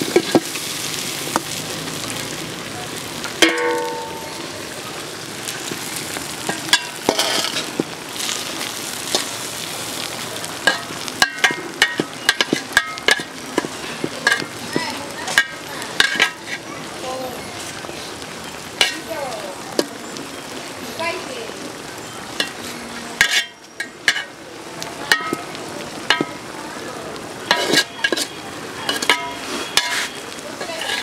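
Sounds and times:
rice sizzling in a pot: 0.0s - 31.0s
ringing metal clang: 3.4s - 4.4s
metal spoon scraping rice: 27.5s - 28.3s, 28.9s - 31.0s.

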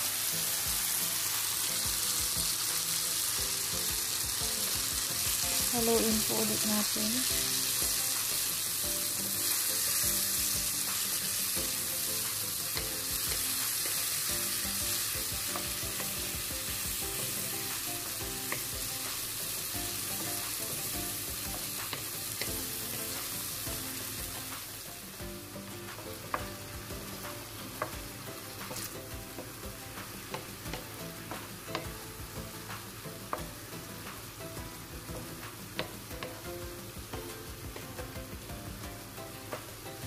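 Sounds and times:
vegetables sizzling in oil: 0.0s - 40.0s
wooden spatula knocking pan: 35.2s - 36.4s.

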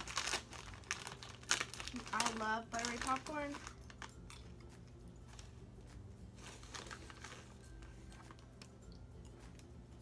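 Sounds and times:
plastic bag crinkling: 0.0s - 4.5s, 6.4s - 8.4s
low steady hum: 0.0s - 10.0s
popcorn being chewed: 0.0s - 10.0s.

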